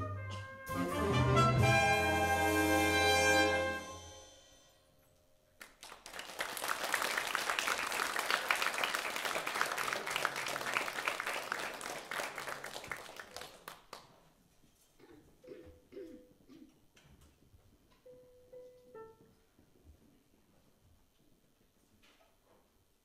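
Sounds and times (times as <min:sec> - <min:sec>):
orchestra last notes: 0:00.0 - 0:04.8
audience applause: 0:05.6 - 0:14.2.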